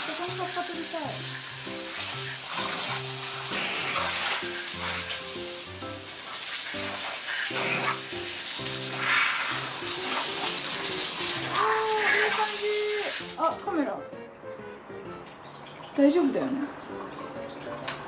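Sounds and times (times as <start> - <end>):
background music: 0.0 - 18.0.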